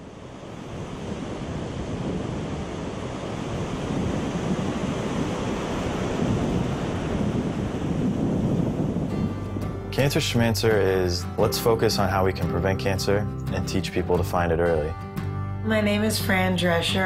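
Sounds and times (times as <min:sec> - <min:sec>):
steady rushing noise: 0:00.0 - 0:09.9.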